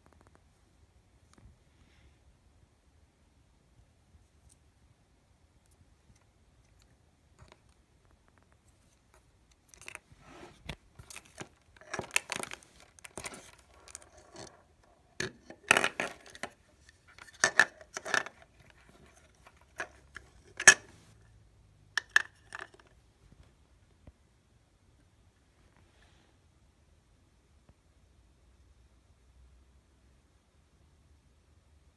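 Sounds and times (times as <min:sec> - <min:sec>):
plastic case clicks and rattles: 0:11.0 - 0:14.6, 0:15.2 - 0:20.9.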